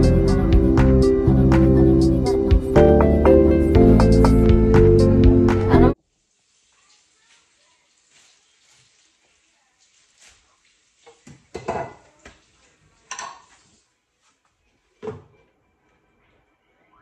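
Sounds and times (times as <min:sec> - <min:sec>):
dishes clattering: 0:11.2 - 0:12.2, 0:13.1 - 0:13.6.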